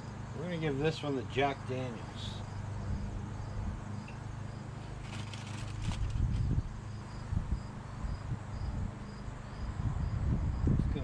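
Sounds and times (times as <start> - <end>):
insects chirping: 2.2 - 10.8
light clicks and rustles: 5.0 - 6.4.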